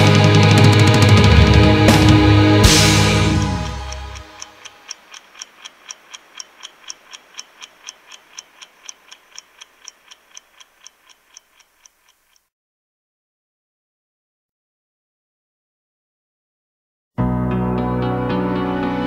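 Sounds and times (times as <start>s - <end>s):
heavy metal chord: 0.8s - 4.4s
clock ticking: 2.6s - 12.5s.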